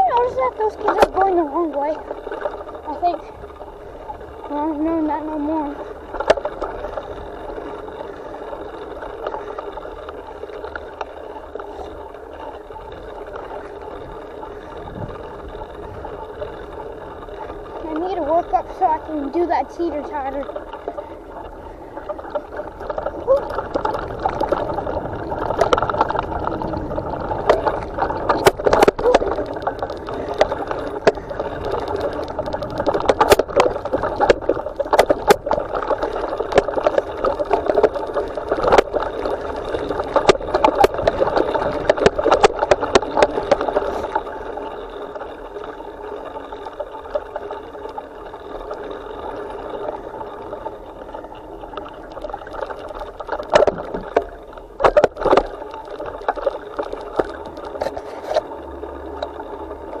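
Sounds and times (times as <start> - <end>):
bicycle tyre rumble on dirt: 0.0 - 60.0
camera mount rattling and knocking: 27.4 - 39.0.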